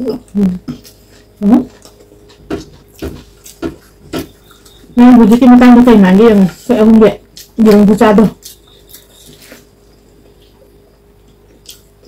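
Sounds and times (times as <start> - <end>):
lip smacking and chewing: 10.5 - 12.0.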